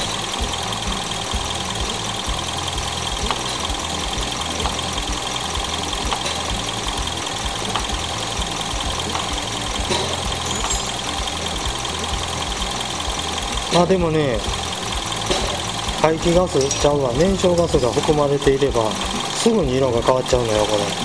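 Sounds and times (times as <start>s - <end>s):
car engine idling: 0.0s - 21.0s.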